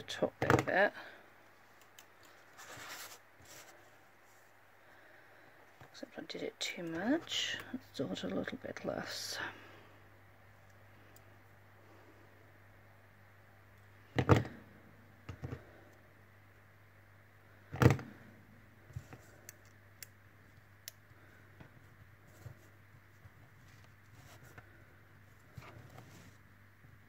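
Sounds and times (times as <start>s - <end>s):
faint clicks and taps of wire: 1.8s - 2.4s, 18.9s - 21.7s.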